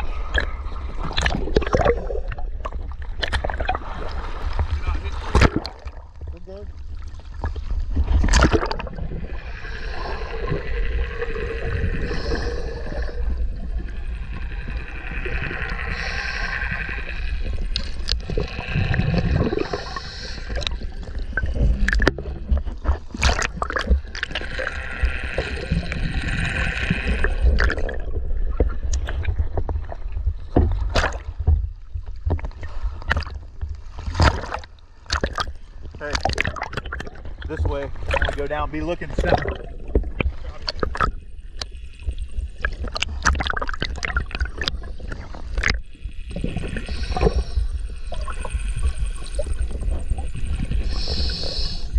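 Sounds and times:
water sloshing and gurgling: 0.0s - 51.9s
sharp knocks and splashes: 1.1s - 6.3s, 7.4s - 8.9s, 21.6s - 24.4s, 30.5s - 33.4s, 34.0s - 38.6s.

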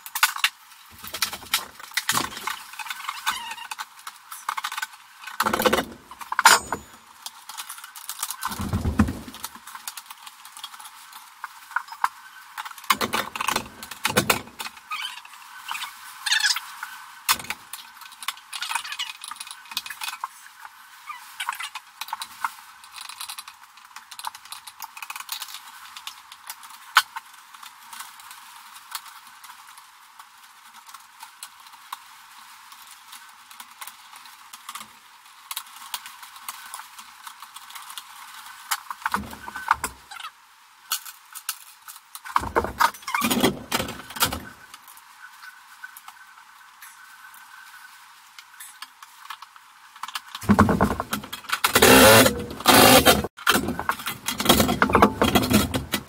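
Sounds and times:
cables clicking and scraping: 48.4s - 56.0s.

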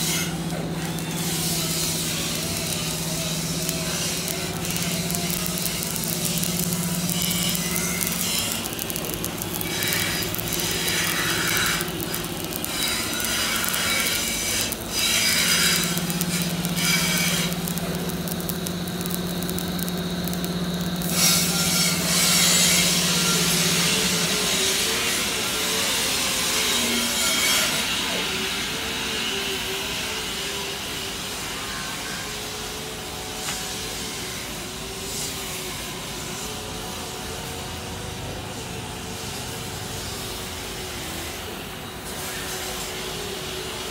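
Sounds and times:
workshop noise: 0.0s - 22.8s
steady electrical hum: 0.0s - 24.4s
welding arc crackling: 0.0s - 24.8s.

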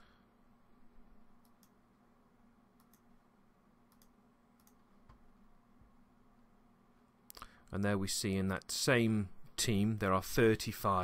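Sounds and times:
low steady hum: 0.0s - 11.0s
computer mouse clicks: 1.4s - 1.8s, 2.8s - 3.1s, 3.9s - 5.2s.

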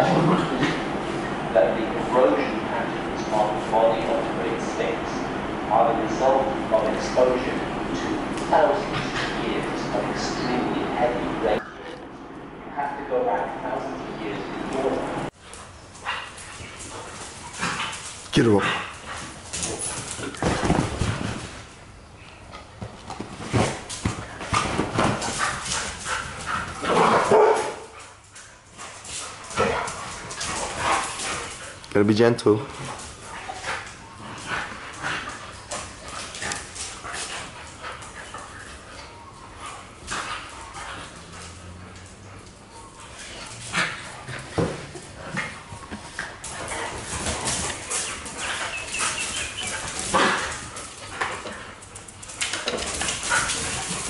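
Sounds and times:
dogs making play calls: 13.9s - 21.7s, 22.4s - 31.9s, 32.6s - 54.0s
dogs barking: 25.2s - 28.2s, 32.8s - 52.3s.

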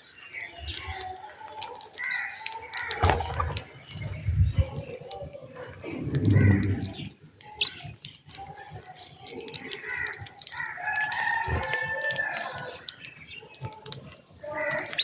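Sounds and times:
rooster crowing: 10.8s - 12.7s.

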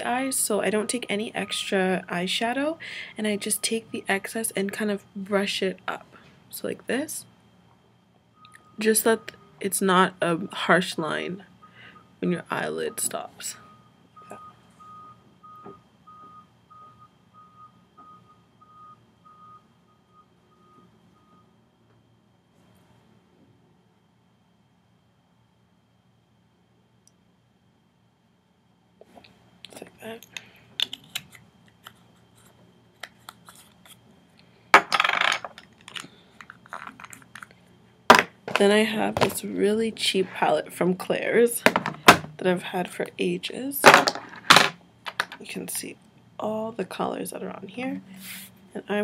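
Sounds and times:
vehicle reversing alarm beeping: 8.3s - 21.6s
make-up items clicking and clattering: 34.8s - 37.5s, 43.9s - 45.4s.

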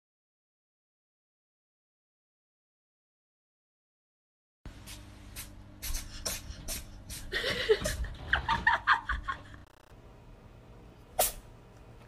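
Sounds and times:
cat sneezing: 4.9s - 7.3s, 11.2s - 11.5s.

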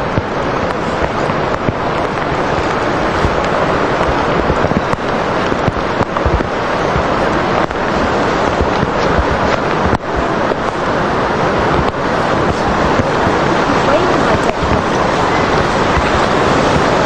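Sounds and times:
surf: 0.0s - 17.0s
wind: 0.0s - 17.0s
wind buffeting microphone: 0.0s - 17.0s.

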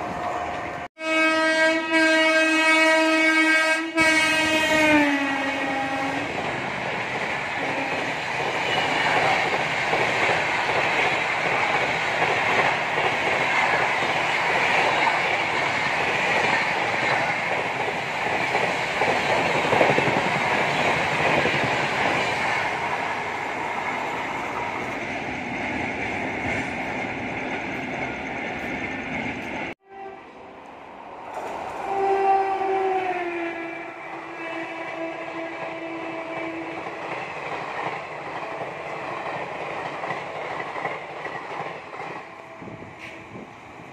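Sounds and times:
train rumble and wheel clatter: 0.0s - 43.9s
train horn: 0.9s - 6.4s, 7.6s - 9.4s, 29.8s - 30.6s, 31.8s - 37.0s, 42.2s - 43.5s.

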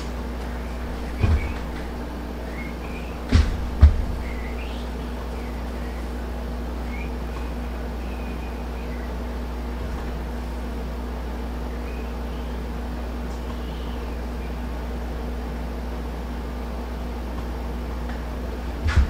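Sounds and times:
low machine hum: 0.0s - 19.0s
faint high chirps: 6.8s - 9.4s, 11.6s - 14.7s.

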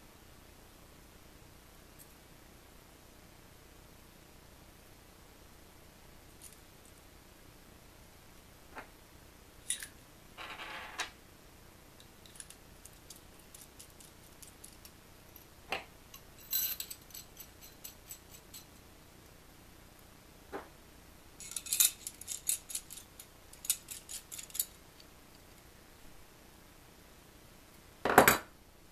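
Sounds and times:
metal screwdriver bits clinking: 16.2s - 18.7s, 21.4s - 24.8s.

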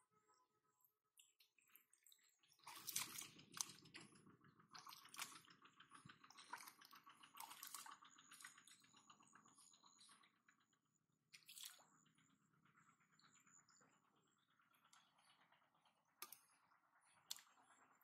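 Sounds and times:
hands splashing in muddy water: 2.6s - 3.8s.

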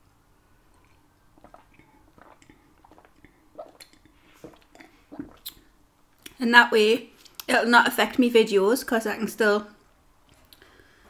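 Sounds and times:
person gulping and swallowing: 0.7s - 6.4s
wet mouth sounds: 0.7s - 6.4s.

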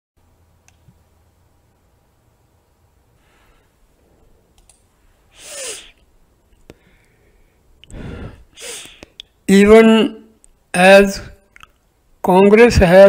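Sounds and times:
short breaths: 3.2s - 4.2s, 5.0s - 6.0s, 6.7s - 9.2s
faint mouth click: 8.7s - 9.4s, 11.5s - 11.8s.

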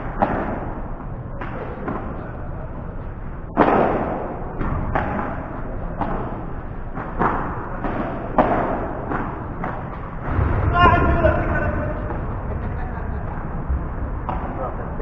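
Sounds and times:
ball striking court walls: 0.0s - 2.3s, 3.5s - 11.2s
rackets hitting ball: 0.0s - 12.4s, 14.1s - 15.0s.

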